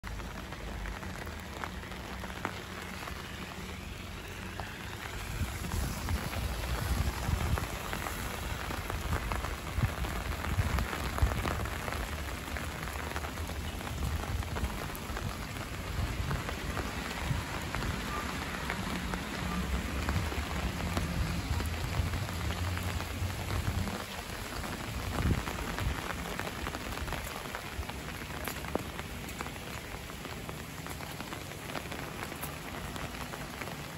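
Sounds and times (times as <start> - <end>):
rain on wet pavement: 0.0 - 33.9.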